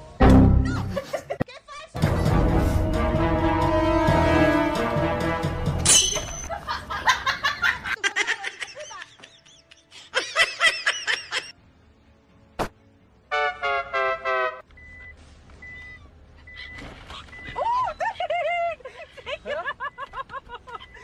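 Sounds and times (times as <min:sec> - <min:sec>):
person laughing: 0:00.6 - 0:02.2, 0:06.4 - 0:11.5, 0:17.6 - 0:21.0.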